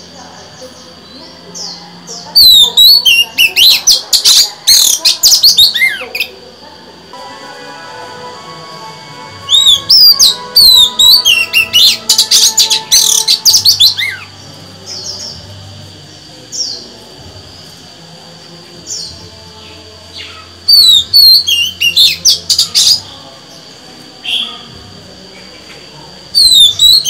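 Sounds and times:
magpie-robin singing: 0.0 - 6.3, 9.5 - 15.6, 18.8 - 24.7, 26.4 - 27.0.

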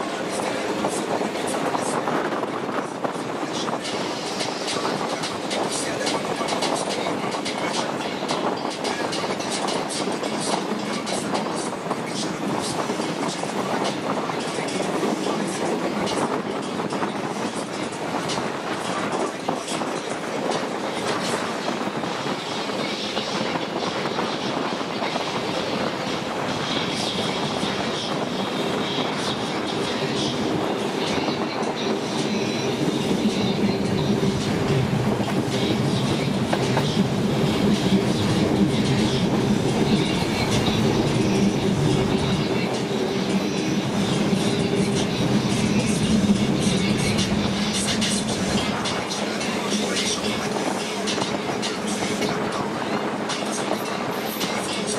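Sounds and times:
train wheels rumbling on rails: 0.0 - 54.9
rushing air: 19.8 - 54.9.

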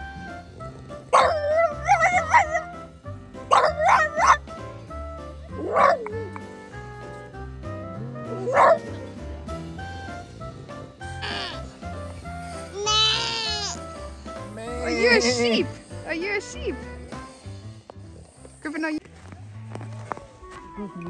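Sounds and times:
background music: 0.0 - 21.0
dog howling: 1.2 - 2.7.

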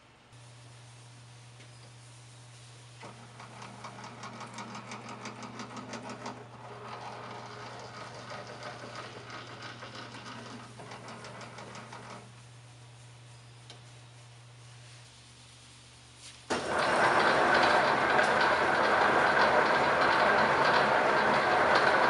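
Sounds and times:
low machine hum: 0.0 - 22.0
handwheel mechanical clatter: 16.5 - 22.0.

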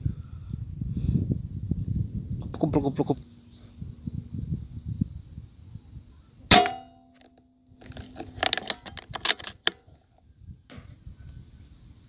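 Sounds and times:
air rifle shot: 6.5 - 7.0.

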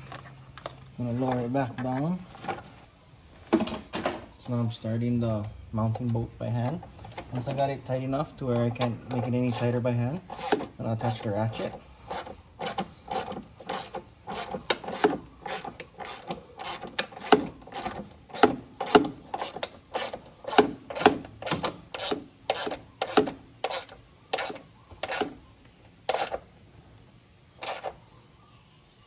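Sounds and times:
ratchet clicking: 8.8 - 25.4, 26.1 - 26.4, 27.6 - 28.0.

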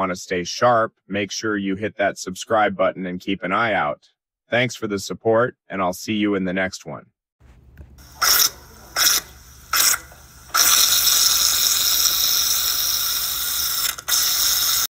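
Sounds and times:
hissing noise: 7.9 - 14.9.

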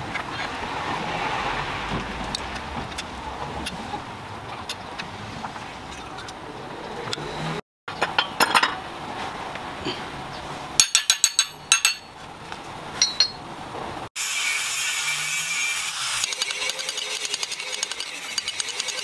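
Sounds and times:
metal parts clinking on vise: 10.8 - 12.1, 13.0 - 13.4
angle grinder cutting steel: 14.2 - 19.0.

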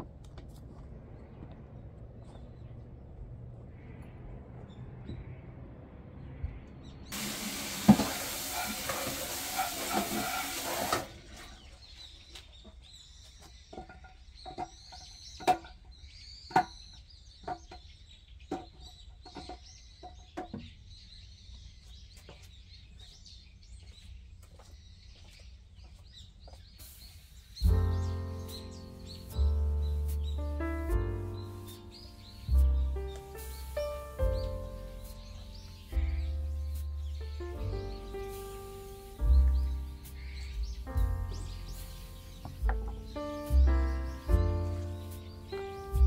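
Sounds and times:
small birds chirping: 0.6 - 7.2, 11.1 - 46.0
tap water running into sink: 7.2 - 11.3.

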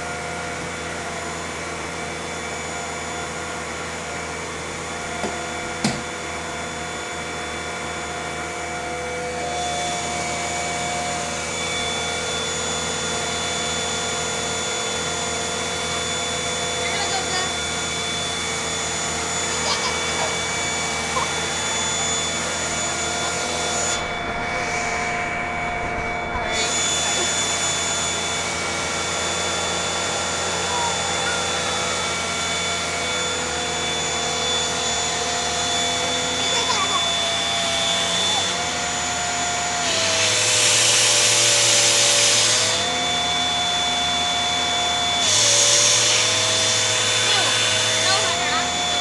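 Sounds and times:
machine whirr with constant tones: 0.0 - 49.0
vacuum cleaner motor whine: 0.0 - 49.0
air rushing through nozzle: 21.6 - 28.2.

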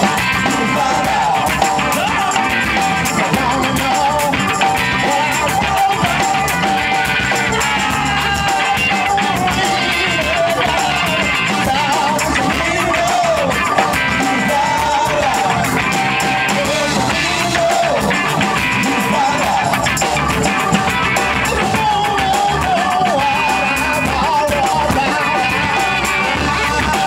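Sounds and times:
bass guitar: 0.0 - 27.0
drum kit: 0.0 - 27.0
electric guitar: 0.0 - 27.0
pitch-bending lead melody: 0.0 - 27.0.

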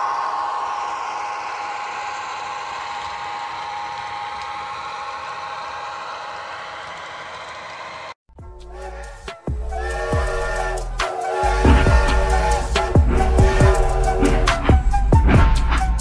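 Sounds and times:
model locomotive drone: 0.0 - 15.0
train wheels rattling on track: 8.8 - 15.0.

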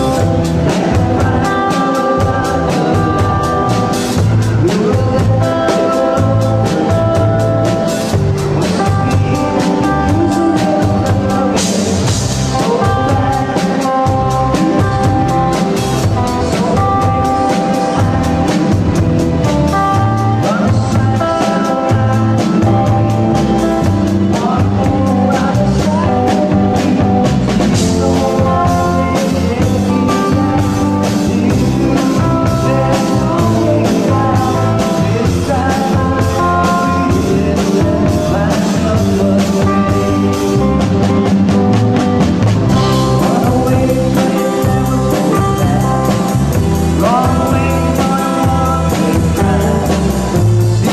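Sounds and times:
live rock band playing: 0.0 - 50.9
man singing: 0.0 - 50.9.

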